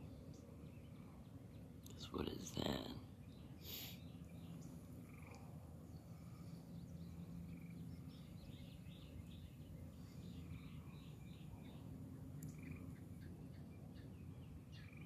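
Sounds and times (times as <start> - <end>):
low steady hum: 0.0 - 15.0
frogs calling: 4.6 - 15.0.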